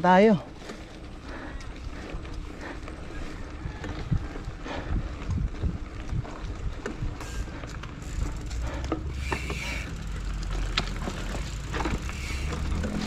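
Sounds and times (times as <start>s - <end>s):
bike tyres rumbling on rough ground: 0.0s - 13.0s
wind on microphone: 3.1s - 7.5s
bike knocks and rattles: 5.6s - 13.0s.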